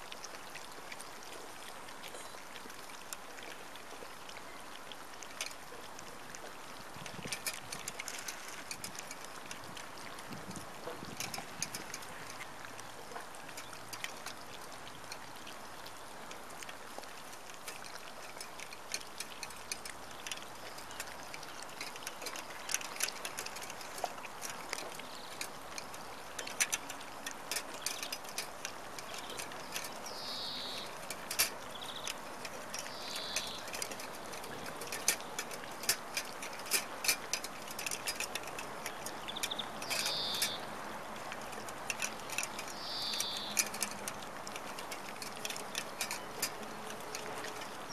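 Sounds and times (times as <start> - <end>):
puppies chewing and lapping: 0.0 - 47.9.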